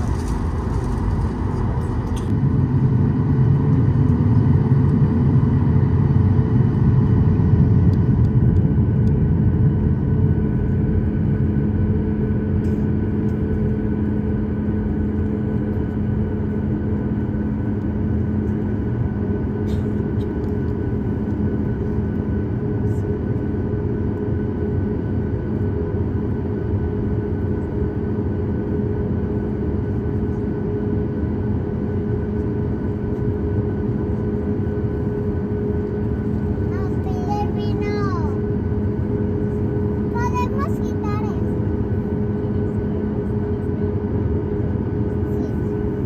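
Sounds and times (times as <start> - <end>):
low cabin rumble: 0.0 - 24.7
jet engines idling hum: 0.0 - 46.0.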